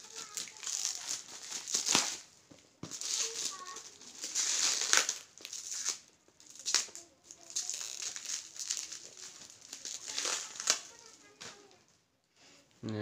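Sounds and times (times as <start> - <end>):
plastic packaging crinkling: 0.0 - 11.8.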